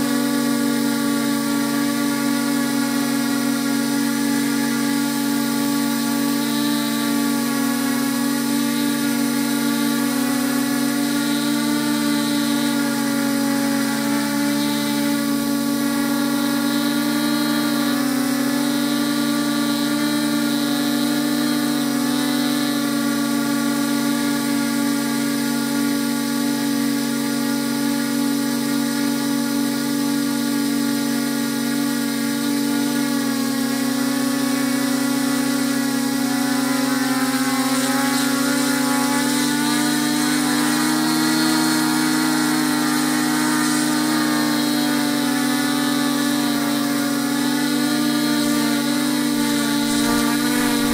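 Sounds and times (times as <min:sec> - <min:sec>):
drone propellers whining: 0:00.0 - 0:24.5, 0:34.2 - 0:50.9.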